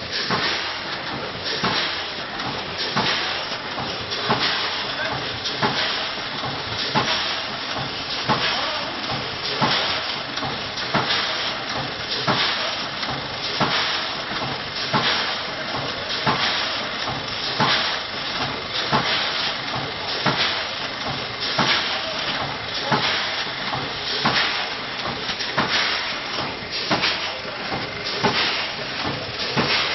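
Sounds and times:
machine clacking: 0:00.0 - 0:29.9
packing machine hiss: 0:00.1 - 0:29.9.

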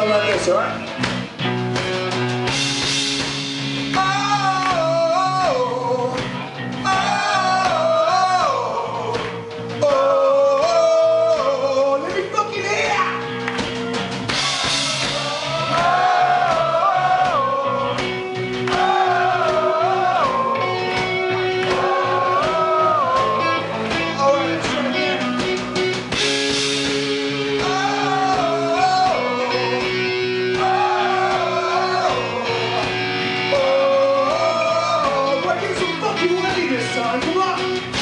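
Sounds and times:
bass guitar: 0:00.0 - 0:38.0
electric guitars: 0:00.0 - 0:38.0
drums with cymbals: 0:00.9 - 0:07.8, 0:13.3 - 0:33.8, 0:35.0 - 0:38.0
man singing: 0:03.9 - 0:12.9, 0:14.4 - 0:20.8, 0:21.7 - 0:25.5, 0:27.3 - 0:38.0.

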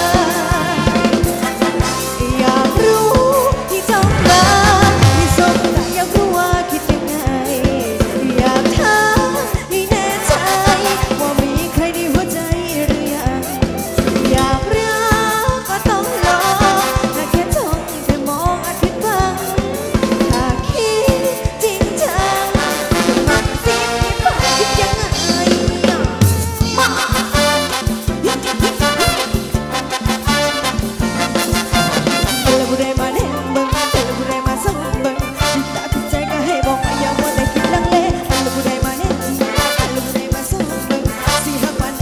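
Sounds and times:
person singing: 0:00.0 - 0:27.5, 0:31.5 - 0:42.0
drum kit playing busy beat: 0:00.0 - 0:42.0
dance band melody: 0:00.7 - 0:06.8, 0:22.0 - 0:42.0.

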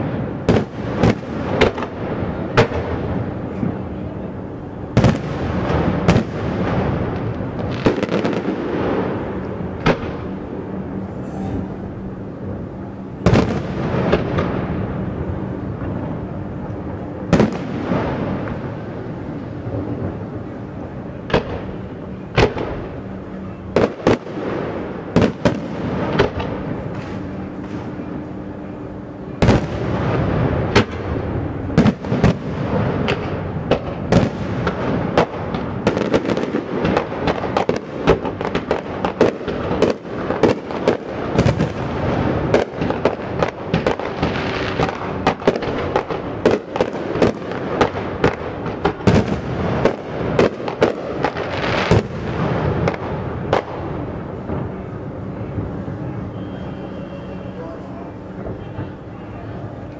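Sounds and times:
steady background wash: 0:00.0 - 0:35.9
fireworks bangs and crackles: 0:00.0 - 0:59.9.

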